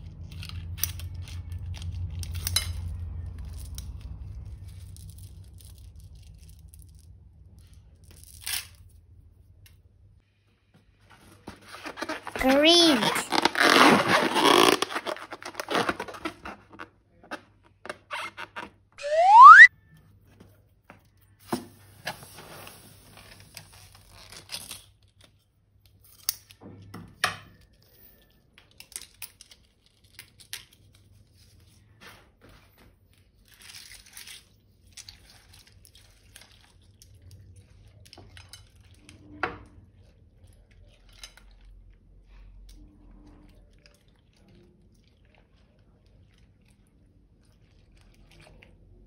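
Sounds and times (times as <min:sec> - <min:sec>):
crinkling: 0:11.4 - 0:18.7
balloon squeaking: 0:11.8 - 0:16.5, 0:18.1 - 0:19.7.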